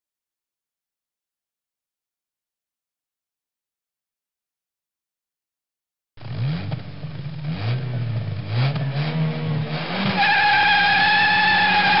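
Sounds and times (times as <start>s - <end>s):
car engine revving: 6.2s - 12.0s
tyre squeal: 10.1s - 12.0s.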